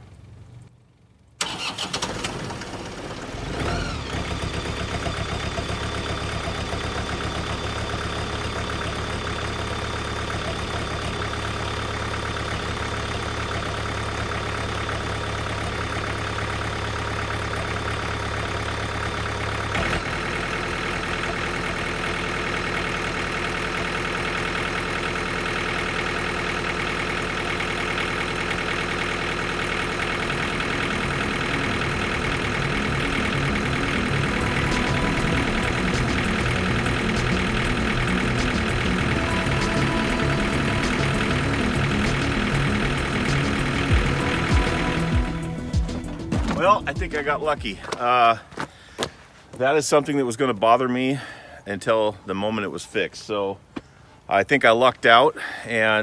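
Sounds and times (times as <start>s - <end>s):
diesel tractor engine starting: 0.0s - 53.0s
engine click: 1.4s - 2.8s.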